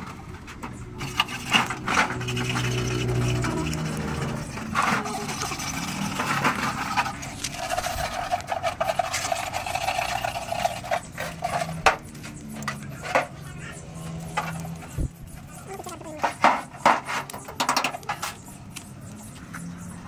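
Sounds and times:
tool buzzing scrape: 0.6s - 13.3s.

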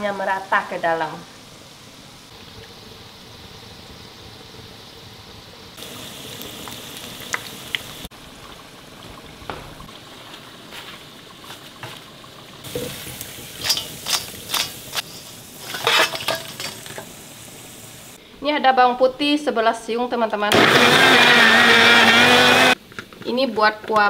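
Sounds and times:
pot simmering hiss: 0.0s - 24.0s.

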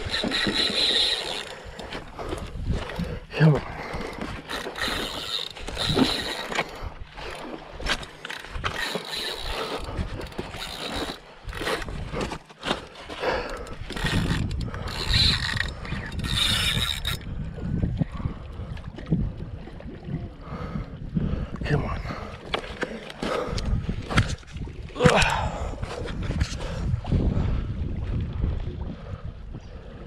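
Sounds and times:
fishing reel clicking and whirring: 0.0s - 17.6s.

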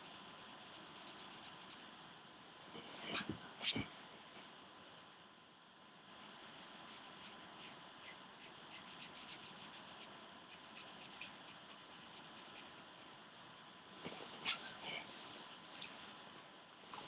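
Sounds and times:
felt-tip pen scribbling on paper: 0.0s - 1.9s, 6.1s - 12.7s.

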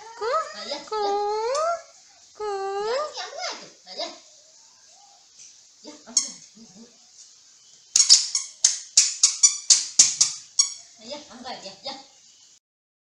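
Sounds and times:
squeaky shoes squeaking: 8.0s - 10.9s.

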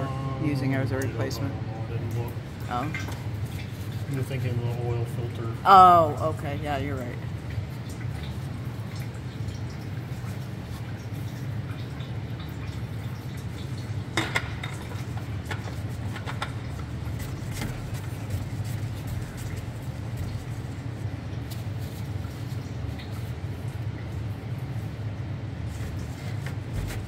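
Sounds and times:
steady low hum: 0.0s - 27.0s
oil dripping into pan: 7.2s - 25.2s.

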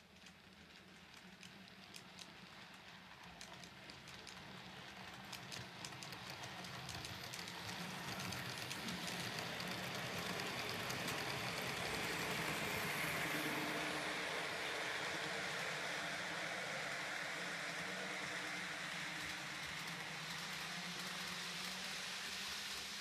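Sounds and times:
wheels clicking over rail joints: 0.0s - 14.3s
model train rolling and rattling: 0.0s - 23.0s.

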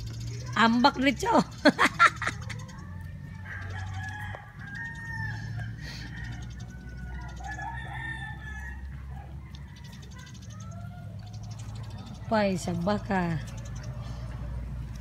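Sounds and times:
bird calls: 0.0s - 15.0s
chickens clucking: 0.0s - 15.0s
rooster crowing: 3.4s - 10.3s.

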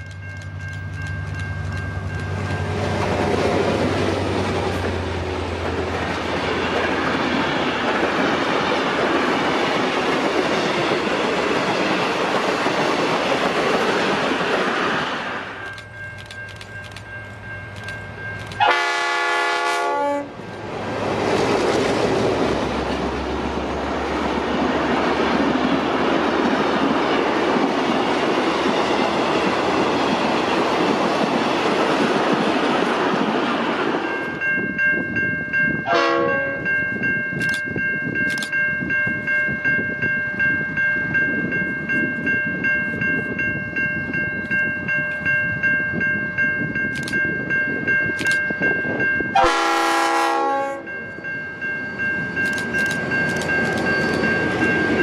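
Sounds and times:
train running on rails: 0.0s - 55.0s
locomotive horn blast: 18.6s - 20.4s, 35.9s - 36.6s, 49.4s - 50.9s.

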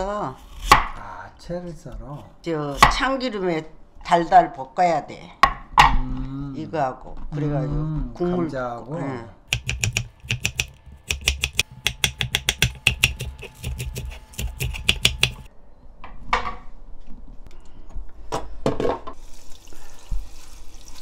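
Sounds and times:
knife chopping on wooden board: 9.5s - 15.5s
scattered knocks: 9.5s - 15.5s.

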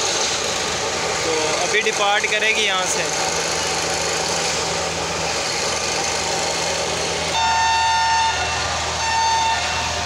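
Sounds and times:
diesel engine humming: 0.0s - 10.0s
train whistle blasts: 7.3s - 10.0s.

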